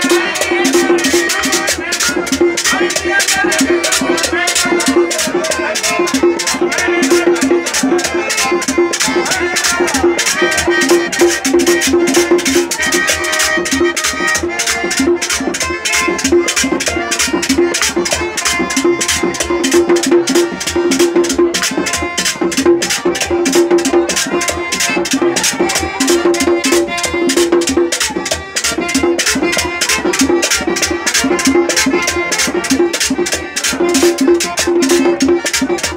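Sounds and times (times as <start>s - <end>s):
button accordion melody: 0.0s - 35.9s
drum beats: 0.0s - 35.9s.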